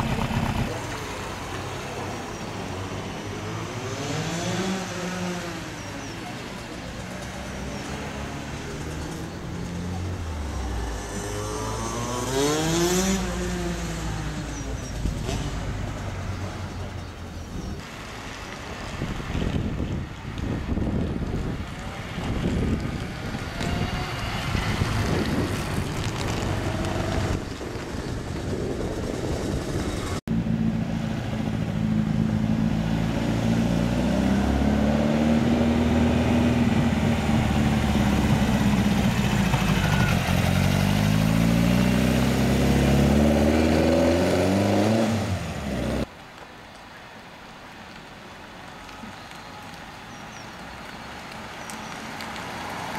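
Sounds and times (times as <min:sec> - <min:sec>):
buggy engine running loud: 0:00.0 - 0:01.2, 0:22.1 - 0:46.1
car going by: 0:17.9 - 0:28.2, 0:29.0 - 0:46.1
wind on microphone: 0:18.8 - 0:30.2.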